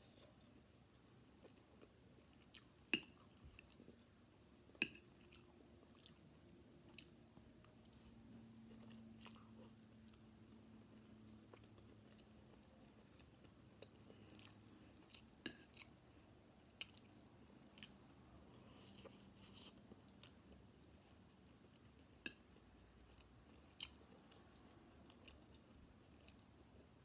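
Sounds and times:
chewing and mouth sounds: 0:04.7 - 0:15.9.

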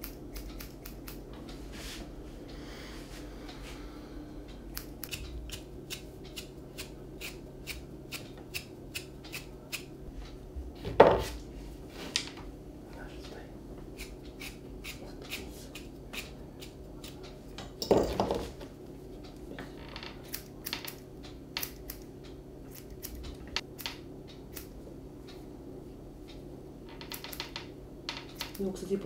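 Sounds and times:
scissors snipping hair: 0:00.0 - 0:01.2, 0:04.7 - 0:09.9, 0:14.0 - 0:17.3, 0:20.3 - 0:21.0, 0:21.6 - 0:22.1, 0:22.7 - 0:24.7
steady low hum: 0:00.0 - 0:29.0.

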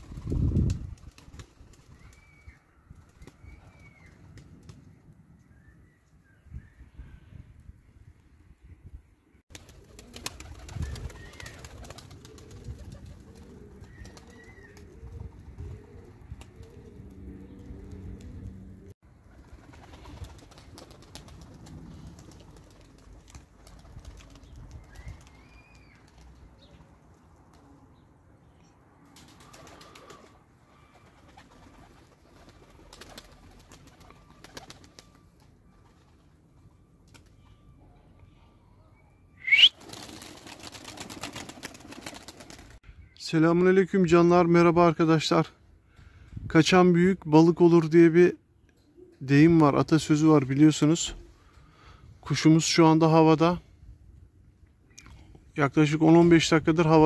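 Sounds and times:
faint outdoor background noise: 0:00.0 - 0:57.0
pigeons cooing: 0:09.6 - 0:18.6
small birds chirping: 0:10.0 - 0:15.3, 0:24.2 - 0:26.9.

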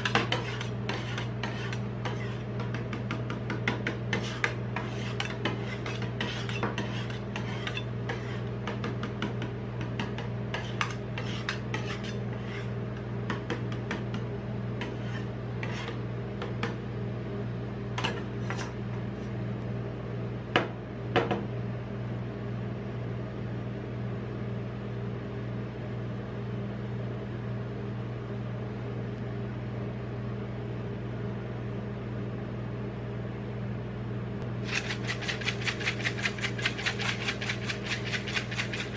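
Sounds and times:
spatulas chopping and scraping metal: 0:00.0 - 0:16.8, 0:34.6 - 0:38.9
refrigeration unit humming: 0:00.0 - 0:38.9.

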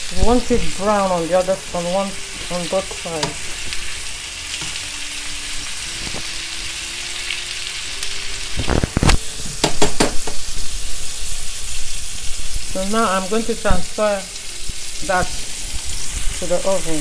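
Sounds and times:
meat sizzling in a frying pan: 0:00.0 - 0:17.0
metal tongs clacking on pan: 0:02.8 - 0:03.5.

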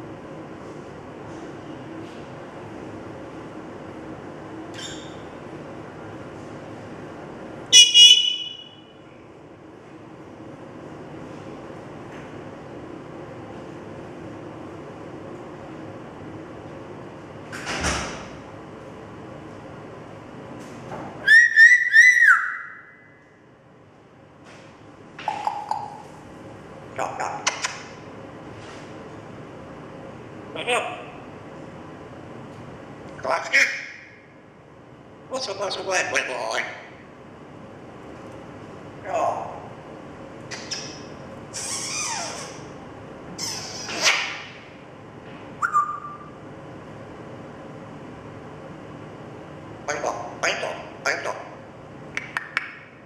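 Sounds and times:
parrot whistling: 0:07.7 - 0:08.8, 0:21.2 - 0:23.1, 0:40.5 - 0:42.6, 0:43.4 - 0:44.4, 0:45.6 - 0:46.4.

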